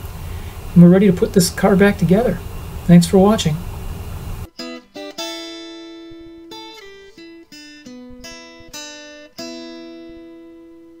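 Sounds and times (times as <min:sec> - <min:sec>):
acoustic guitar strummed chords: 0:04.5 - 0:11.0.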